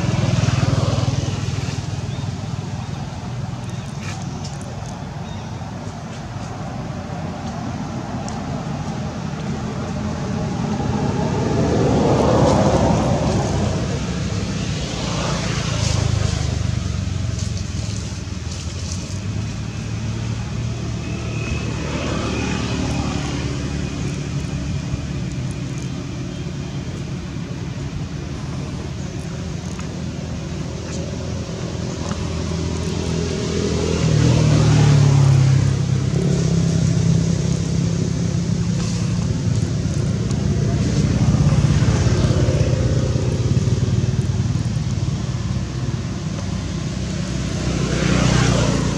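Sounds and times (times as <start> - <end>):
road traffic passing: 0.0 - 48.9.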